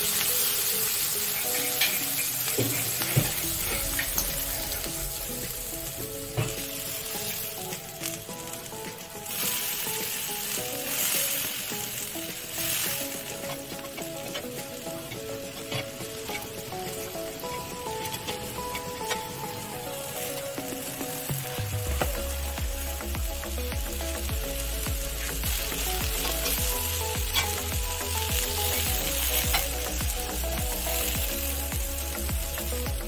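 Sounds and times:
metal spatula scraping a griddle: 0:00.0 - 0:22.4, 0:24.2 - 0:32.9
vegetables sizzling on a griddle: 0:00.0 - 0:33.0.

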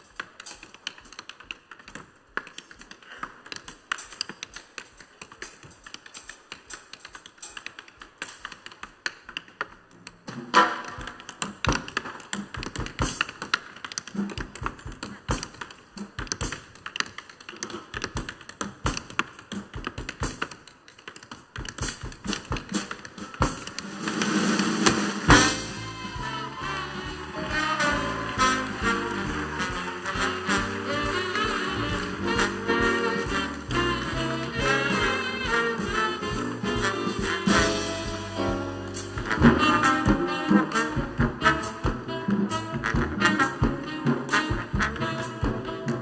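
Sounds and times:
jazz band with drums: 0:10.2 - 0:46.0.

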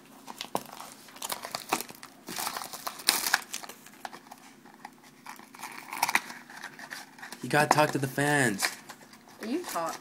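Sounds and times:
card pack wrapper crinkling: 0:00.2 - 0:10.0.

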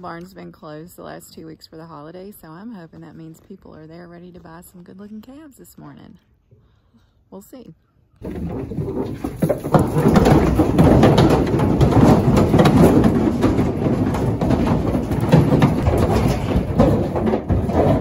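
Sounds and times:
hooves knocking on trailer floor: 0:08.2 - 0:18.0
metal panels and gate rattling: 0:08.2 - 0:18.0.

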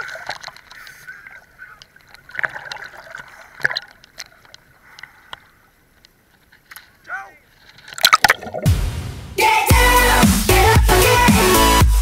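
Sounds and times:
river water splashing and lapping: 0:00.0 - 0:06.9.

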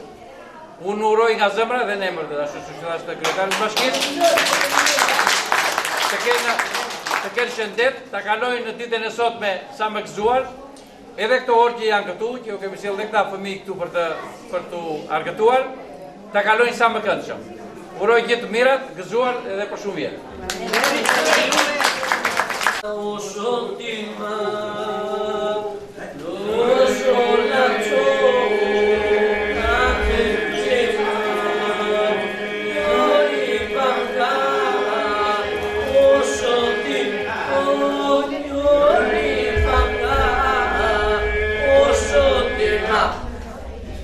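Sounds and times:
male voices singing polyphonic song: 0:22.8 - 0:43.5
sustained vocal drone: 0:24.0 - 0:44.0.

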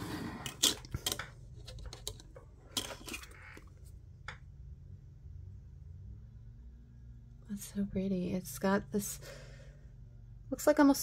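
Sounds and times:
plastic clicks and clatter: 0:00.4 - 0:03.7.

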